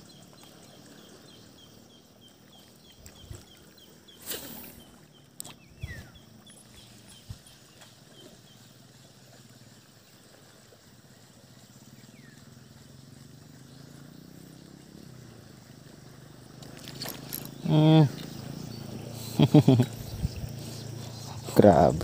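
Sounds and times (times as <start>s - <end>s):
bird chirping: 0.0s - 8.6s, 16.2s - 22.0s.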